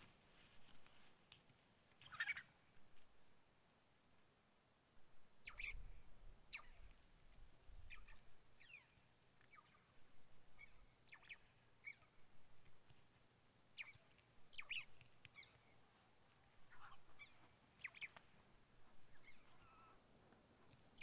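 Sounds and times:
faint bird chirps: 0:02.0 - 0:02.6, 0:05.4 - 0:07.0, 0:07.8 - 0:12.3, 0:13.7 - 0:18.4, 0:19.0 - 0:20.0.

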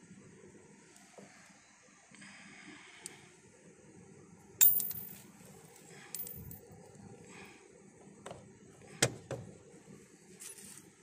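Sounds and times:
metal screws clinking: 0:04.6 - 0:05.2, 0:06.1 - 0:06.5.

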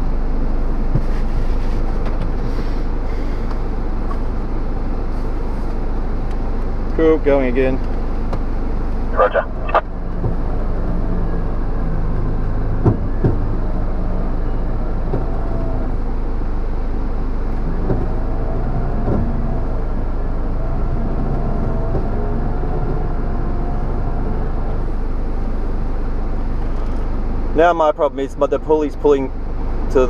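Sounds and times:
engine idling: 0:00.0 - 0:30.0
electric winch running: 0:09.2 - 0:27.7.

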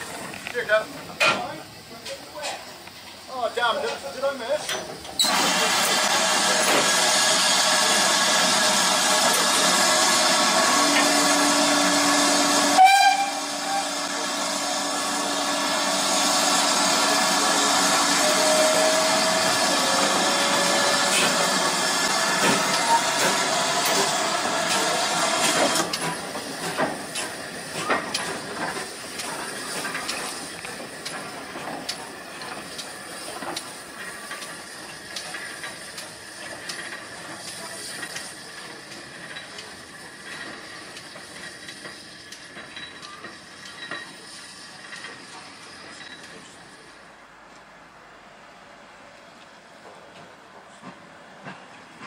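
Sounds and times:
locomotive knocks and clanks: 0:00.0 - 0:02.7, 0:22.3 - 0:44.2
steam locomotive hissing: 0:00.0 - 0:47.4
steam whistle toot: 0:10.8 - 0:14.1.

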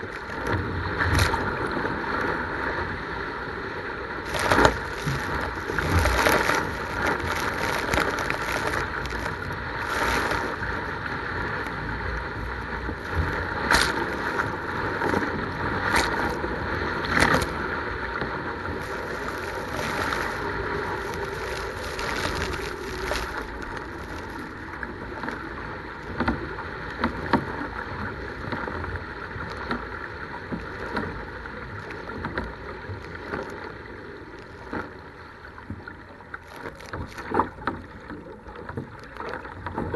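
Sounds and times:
rush of wind and water: 0:00.0 - 0:39.9
loud water splashes: 0:04.2 - 0:25.4.

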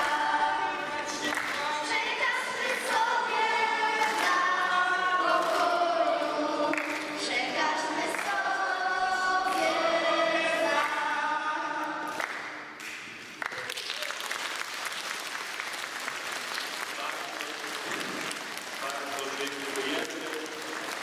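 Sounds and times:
choir singing: 0:00.0 - 0:12.2
applause: 0:01.2 - 0:01.7, 0:04.0 - 0:04.4, 0:05.4 - 0:05.6, 0:06.7 - 0:07.1, 0:08.1 - 0:08.3, 0:12.1 - 0:21.0.

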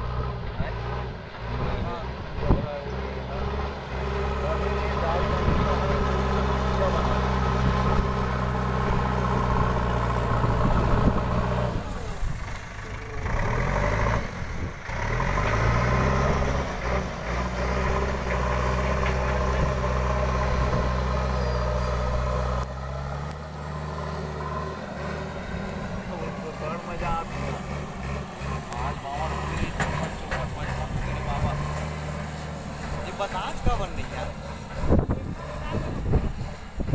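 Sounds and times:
diesel engine working under load: 0:00.0 - 0:36.9.

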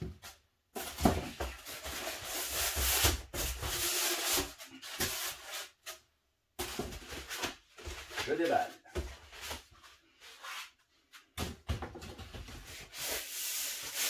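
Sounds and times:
cardboard rubbing and scraping: 0:12.5 - 0:14.0.

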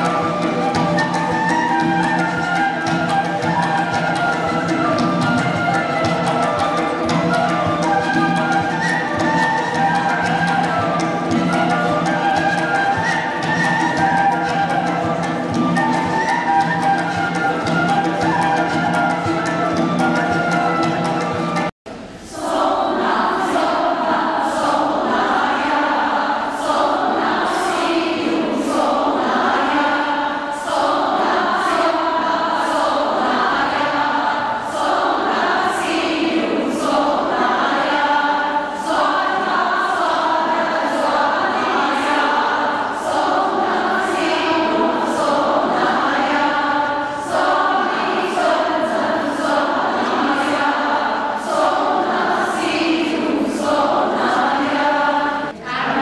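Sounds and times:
group singing together: 0:00.0 - 0:56.0.

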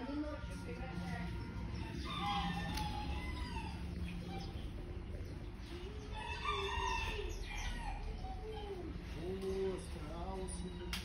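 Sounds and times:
steady low hum: 0:00.0 - 0:11.0
fowl crowing: 0:01.7 - 0:04.6, 0:05.9 - 0:08.2.

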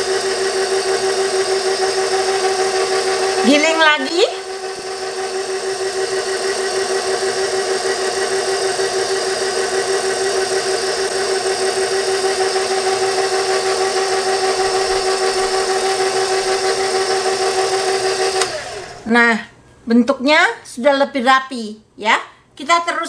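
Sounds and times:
stand mixer motor whining: 0:00.0 - 0:19.1.

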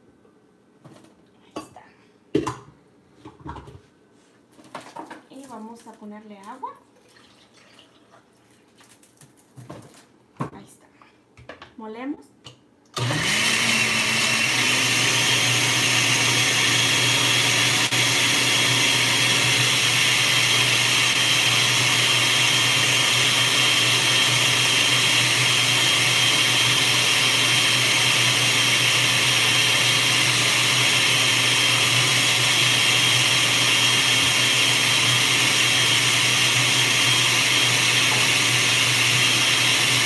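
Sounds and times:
blender motor whining: 0:13.0 - 0:40.0.

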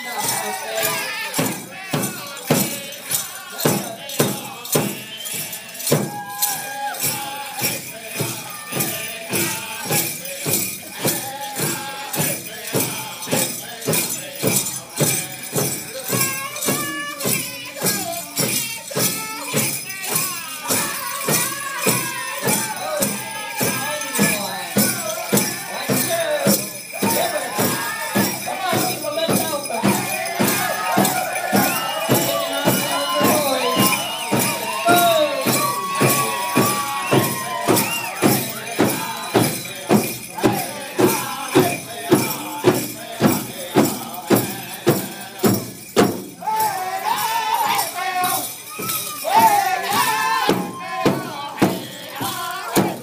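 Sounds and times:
people singing: 0:00.0 - 0:53.0
large drum beating: 0:24.6 - 0:46.4.

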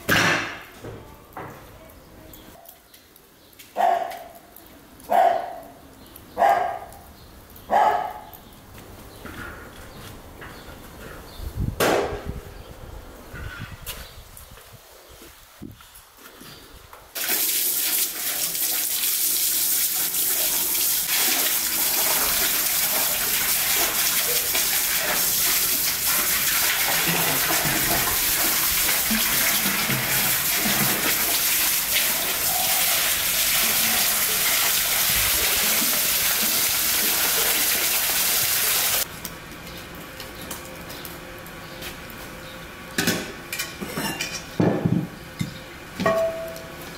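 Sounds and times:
water running and splashing: 0:17.2 - 0:39.1.

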